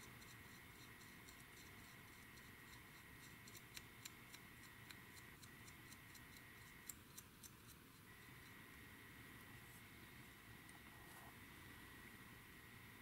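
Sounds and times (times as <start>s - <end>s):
small tool ticking and scraping: 0.0s - 8.6s
faint high whine: 0.0s - 13.0s.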